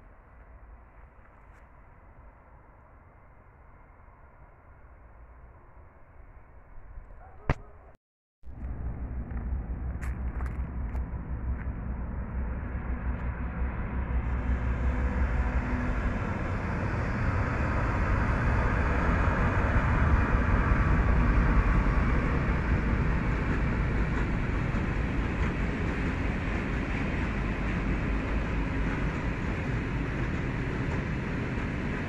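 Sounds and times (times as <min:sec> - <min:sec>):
freight train wheels rumbling on rails: 0:08.6 - 0:32.0.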